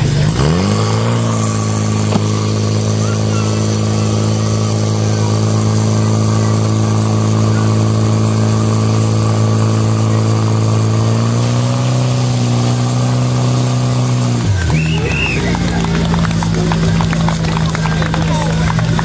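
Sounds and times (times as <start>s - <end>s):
pump engine droning: 0.0s - 19.0s.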